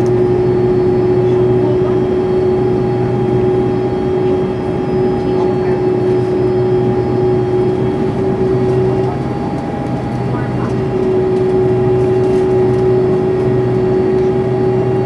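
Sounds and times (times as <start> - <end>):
jet engines whining and rumbling: 0.0 - 15.0.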